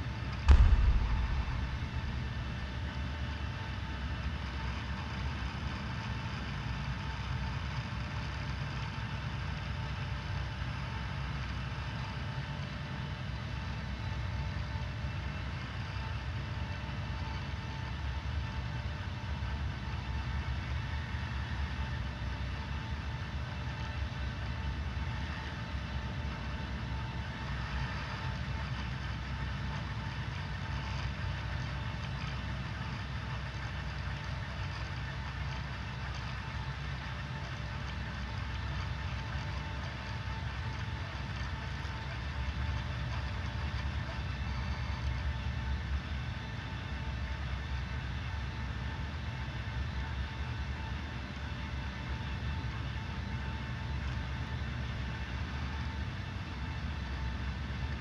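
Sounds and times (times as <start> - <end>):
faint whine: 0.0 - 3.2
mechanical hum and rumble: 0.0 - 58.0.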